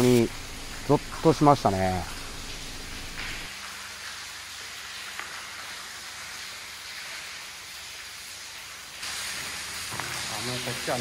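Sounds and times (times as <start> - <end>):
water dripping and trickling: 0.0 - 11.0.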